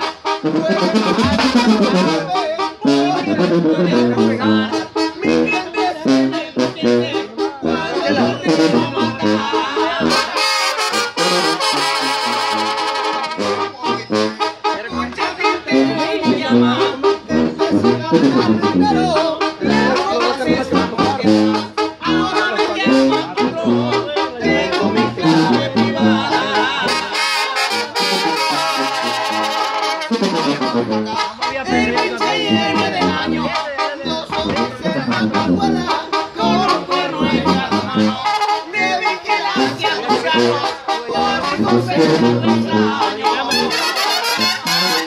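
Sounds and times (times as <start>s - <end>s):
drums beat: 0.0s - 11.7s, 13.6s - 43.5s
brass band playing: 0.0s - 45.0s.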